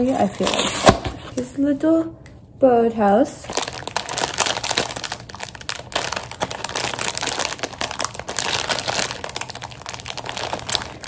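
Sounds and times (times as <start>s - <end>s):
plastic bag crinkling: 3.4s - 11.0s.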